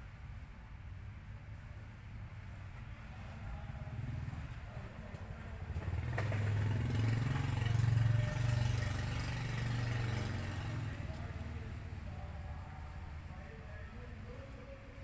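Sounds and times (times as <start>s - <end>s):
vehicle engine passing by: 3.0s - 14.5s.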